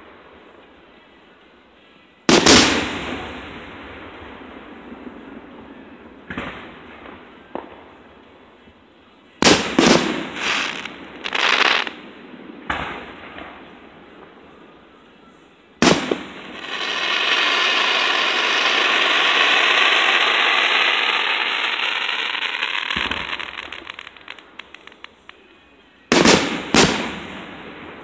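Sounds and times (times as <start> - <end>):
crackling hiss of sparks: 9.4 - 12.0, 15.8 - 27.4.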